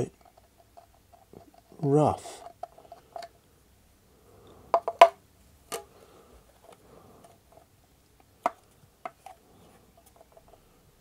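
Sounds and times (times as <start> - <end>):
plastic parts clicking and knocking: 0.1 - 3.4, 4.7 - 5.9, 8.3 - 9.4.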